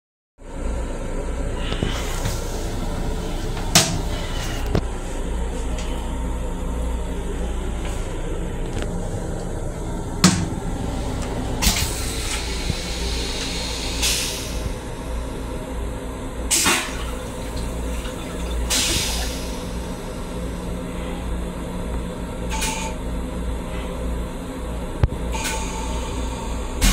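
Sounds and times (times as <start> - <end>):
railcar low rumble: 0.4 - 26.9
toilet flush click: 16.5 - 19.7
water hissing rushes: 16.6 - 20.0.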